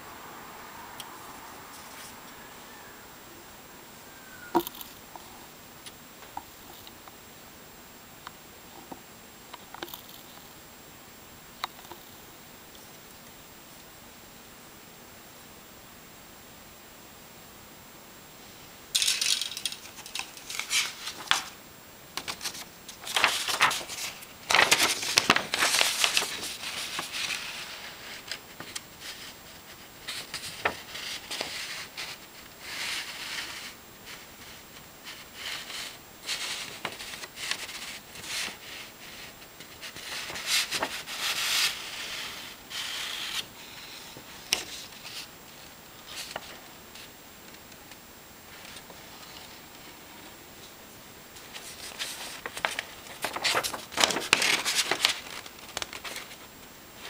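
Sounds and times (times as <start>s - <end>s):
plastic and paper rustling: 19.0s - 47.1s, 51.4s - 57.0s.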